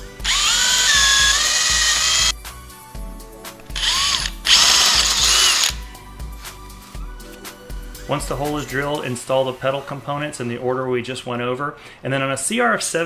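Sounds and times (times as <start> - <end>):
power drill boring metal: 0.2 - 2.4, 3.7 - 5.8.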